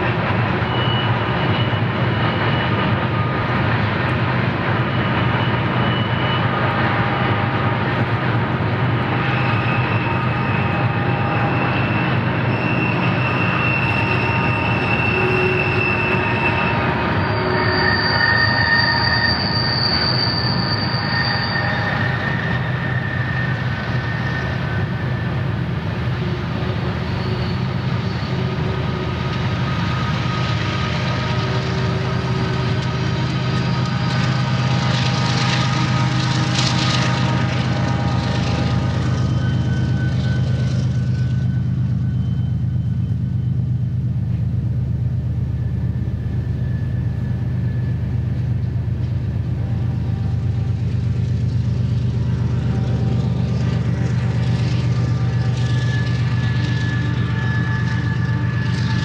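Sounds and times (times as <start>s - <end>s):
locomotive engines droning: 0.0s - 59.0s
wheels squealing: 0.0s - 59.0s.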